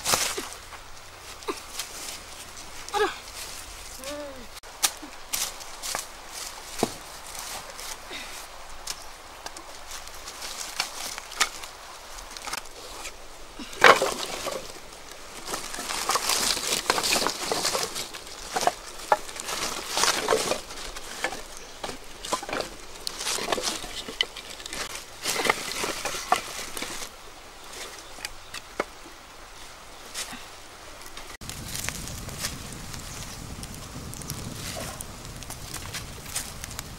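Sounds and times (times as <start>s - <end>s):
dry leaves rustling: 0.0s - 36.9s
sticks of wood knocking together: 13.8s - 14.7s.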